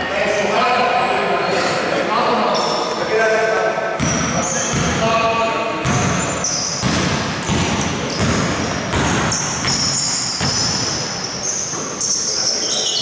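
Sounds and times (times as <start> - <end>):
sneakers squeaking on floor: 2.4 - 3.0, 4.0 - 5.1, 5.8 - 13.0
basketball dribbling on hardwood: 6.8 - 10.8.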